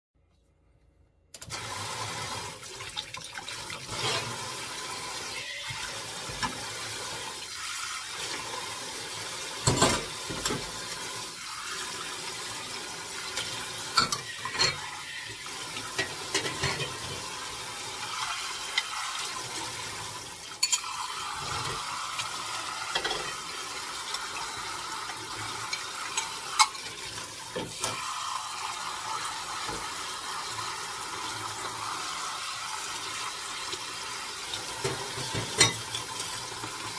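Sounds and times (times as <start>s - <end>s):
faucet spraying water on dishes: 1.4s - 36.9s
dishes clinking on steel sink: 9.6s - 10.7s, 13.4s - 14.9s, 15.9s - 17.3s, 20.6s - 21.9s, 22.9s - 23.5s, 34.8s - 36.2s.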